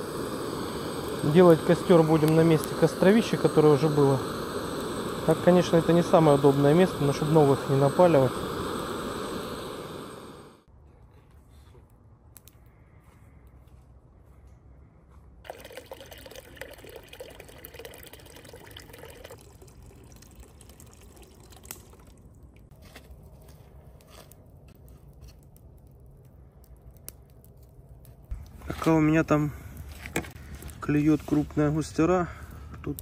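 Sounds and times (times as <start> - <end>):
faint water drips: 15.5 - 22.7
water pouring: 15.5 - 22.7.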